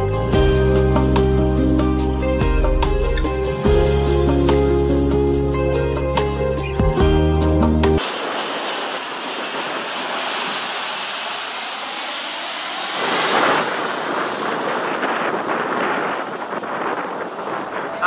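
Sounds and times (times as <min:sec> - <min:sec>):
jet airliner passing overhead: 0:08.0 - 0:18.0.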